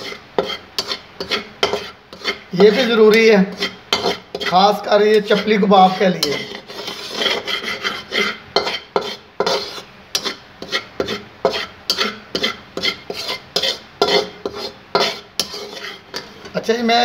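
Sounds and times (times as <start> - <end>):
spatula scraping flour in pan: 0.0 - 16.7.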